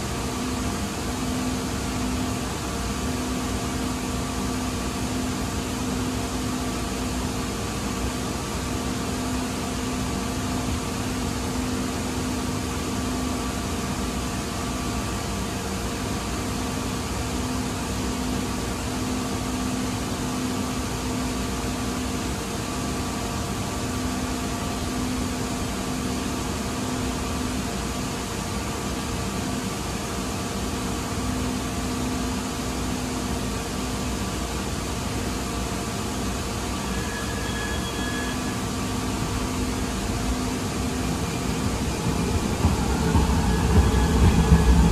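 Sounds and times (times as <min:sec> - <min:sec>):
ventilation hiss and hum: 0:00.0 - 0:44.9.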